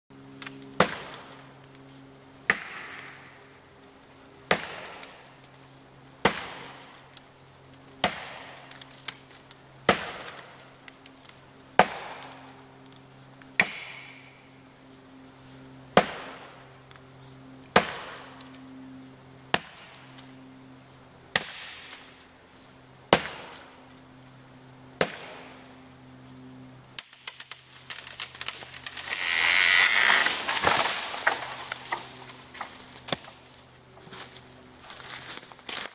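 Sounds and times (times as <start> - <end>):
blade chopping into sapling: 0.4 - 1.4, 2.4 - 3.3, 4.5 - 5.2, 6.2 - 6.8, 8.0 - 8.8, 9.8 - 10.6, 11.8 - 12.4, 13.6 - 14.2, 16.0 - 16.4, 17.7 - 18.2, 21.3 - 22.0, 23.1 - 23.7, 25.0 - 25.6, 28.3 - 33.3
tree cracking and falling through brush: 26.9 - 35.9.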